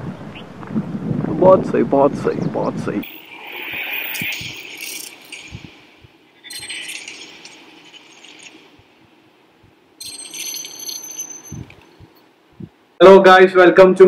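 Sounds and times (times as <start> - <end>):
hissing bursts with ringing tones: 3.0 - 9.0.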